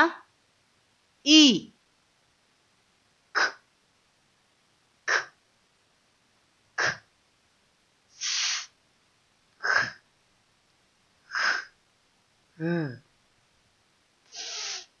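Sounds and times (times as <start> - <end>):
woman making held hiss: 8.1 - 8.8, 11.3 - 11.7, 14.3 - 15.0
woman making sharp breath puffs: 8.2 - 8.7, 11.3 - 11.7, 14.3 - 14.9.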